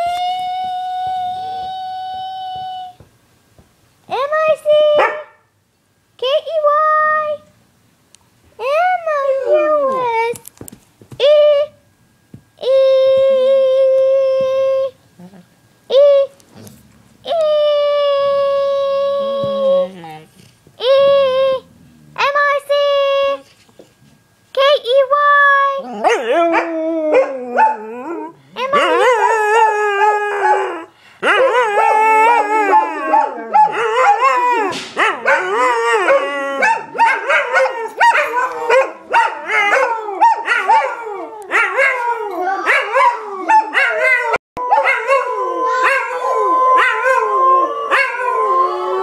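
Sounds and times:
dogs howling: 25.8s - 49.0s.

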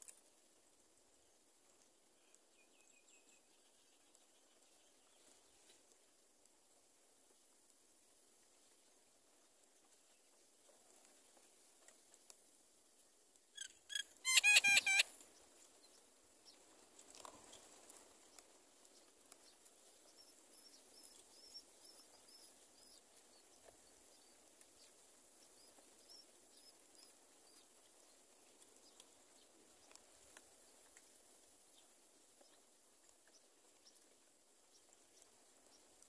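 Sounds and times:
faint high cheeps of nestlings: 13.6s - 15.0s
shrill bird calls: 13.6s - 15.1s.

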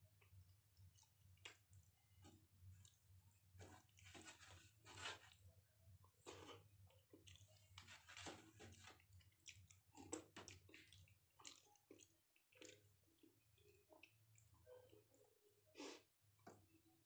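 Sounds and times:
chewing: 0.2s - 16.8s
fingers squishing food on plate: 6.3s - 14.5s.

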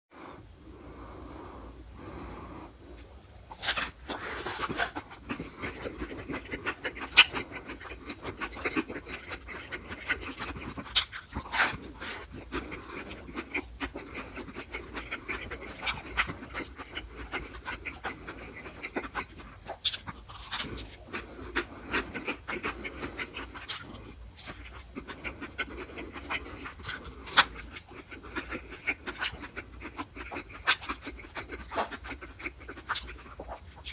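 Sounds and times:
heavy breathing through nose: 0.2s - 6.0s
wet chewing and lip smacks: 3.0s - 33.9s.

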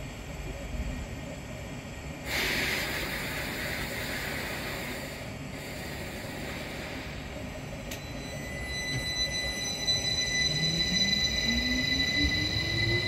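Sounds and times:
high-pitched train whine: 0.0s - 13.0s
train air hiss: 2.2s - 7.8s.

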